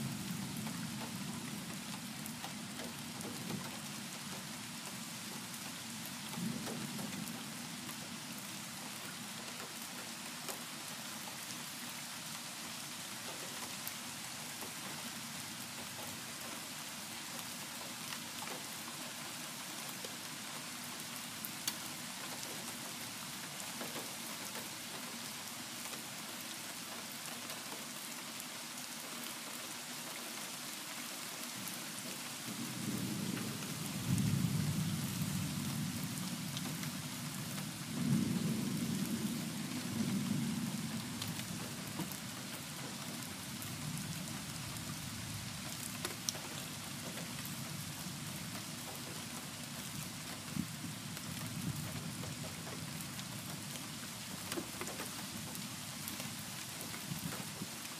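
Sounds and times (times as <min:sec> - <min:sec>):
steady rain falling: 0:00.0 - 0:57.9.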